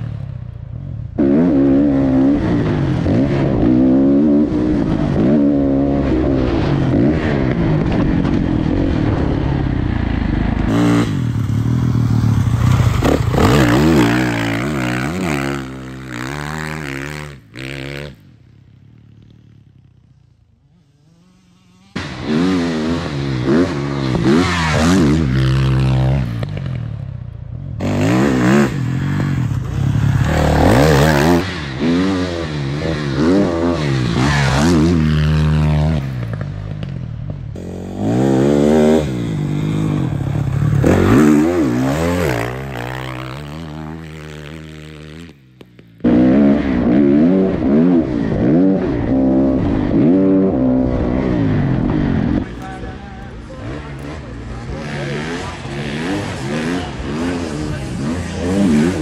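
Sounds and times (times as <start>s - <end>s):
dirt bike engine revving: 1.1s - 26.9s, 27.8s - 59.0s.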